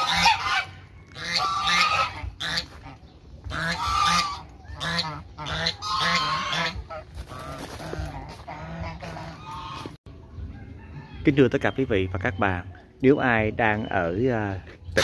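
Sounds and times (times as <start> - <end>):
geese honking: 0.0 - 10.0.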